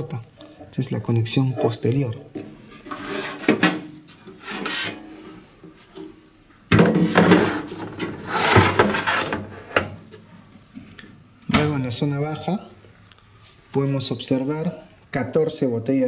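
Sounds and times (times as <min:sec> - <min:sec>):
gloved hand scraping metal panels: 0:02.7 - 0:05.2, 0:06.9 - 0:09.8.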